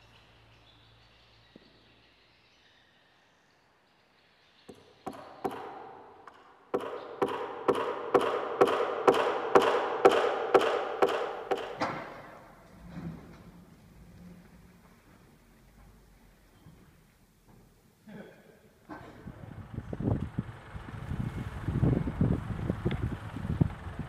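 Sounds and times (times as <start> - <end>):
evenly spaced knocks: 4.7 - 13.6.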